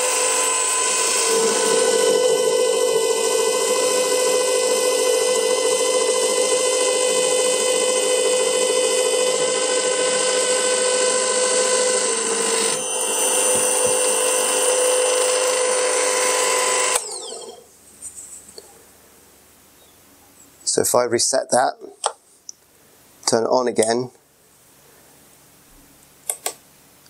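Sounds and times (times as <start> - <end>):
drill press motor whining: 0.0 - 17.7.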